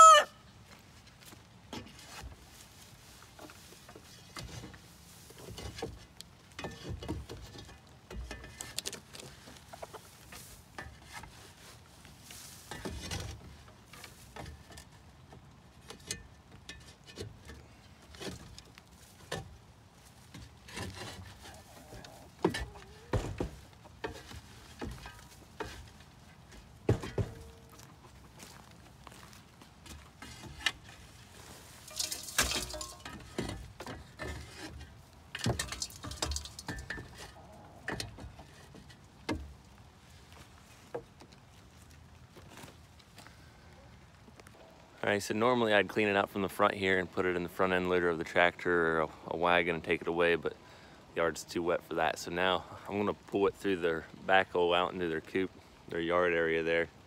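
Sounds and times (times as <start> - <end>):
metal tool scraping wood: 20.4 - 22.8, 31.8 - 38.5.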